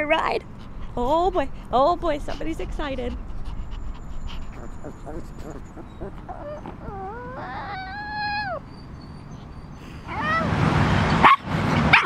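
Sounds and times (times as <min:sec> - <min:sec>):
small dog whining: 0:03.6 - 0:10.5.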